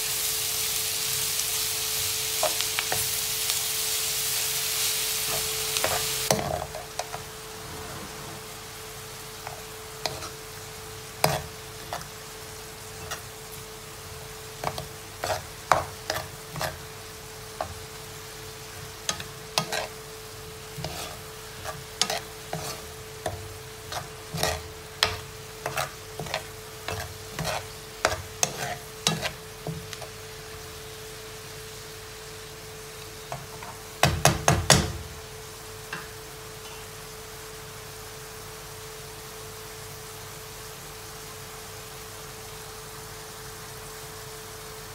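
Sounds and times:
mushrooms and onions sizzling: 0.0s - 44.9s
steady hum: 4.8s - 15.0s
metal spoon scraping a pan: 9.4s - 10.4s, 11.2s - 12.1s, 14.6s - 16.8s, 19.1s - 20.0s, 20.7s - 30.2s.

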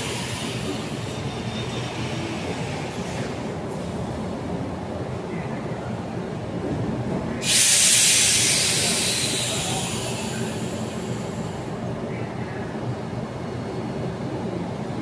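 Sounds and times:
train running equipment rumble: 0.0s - 15.0s
compressed air hiss: 7.4s - 11.6s.

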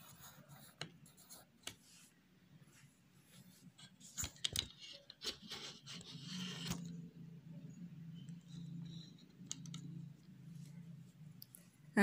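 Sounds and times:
pencil scratching on paper: 0.0s - 1.5s.

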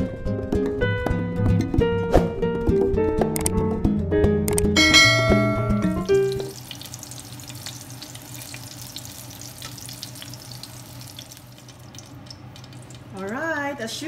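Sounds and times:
musical jingle with bright chime: 4.8s - 6.5s
food sizzling in a frying pan: 6.1s - 14.0s.

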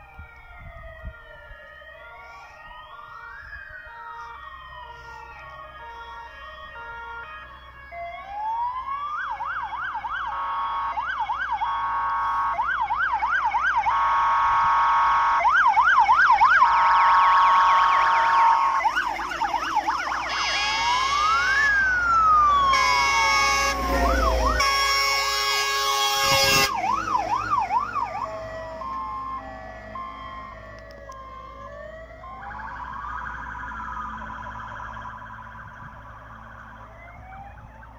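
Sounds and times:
truck engine rumble: 0.0s - 13.4s, 15.9s - 37.9s
fast yelping siren: 0.0s - 37.9s
wailing siren: 0.0s - 37.9s
blaring horn tones: 13.9s - 15.4s, 17.9s - 28.1s.

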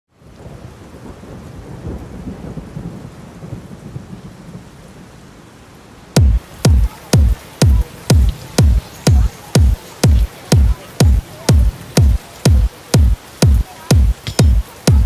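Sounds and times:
rain: 0.1s - 15.0s
dance music: 6.2s - 15.0s
electronic kick drum beats: 6.2s - 15.0s
thunder rumbling: 6.2s - 15.0s.

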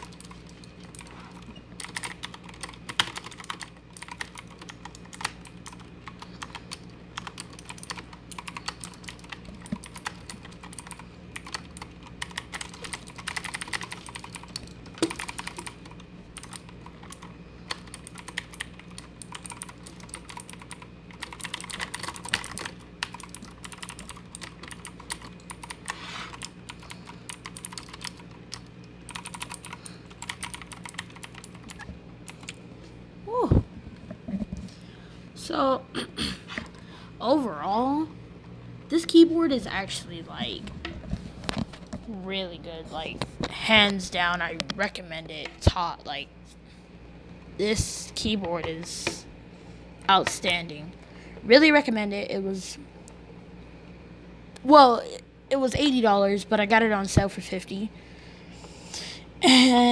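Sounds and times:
mechanical keyboard clicking: 1.8s - 25.8s, 27.3s - 32.6s.

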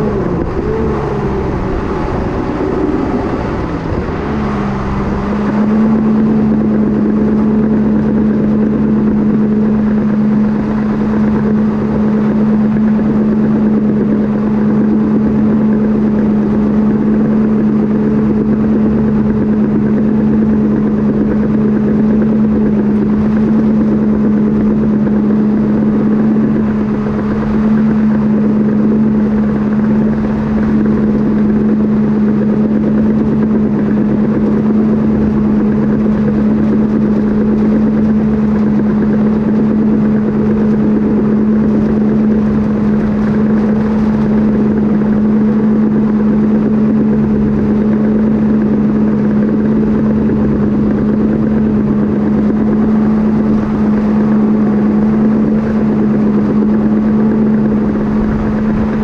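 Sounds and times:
dozer diesel engine running: 0.0s - 59.0s.

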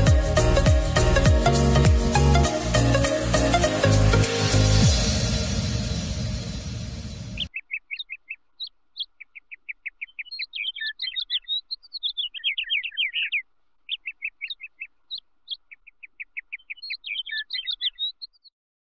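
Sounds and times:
songbird singing: 7.0s - 18.5s.

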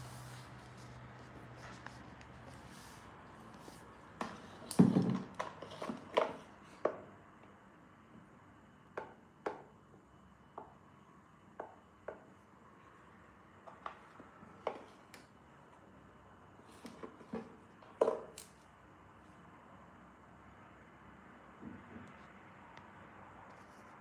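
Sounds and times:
knocks and clicks on tiled floor: 4.2s - 7.1s, 8.9s - 9.7s, 11.6s - 12.4s, 13.6s - 15.3s, 16.8s - 18.6s.

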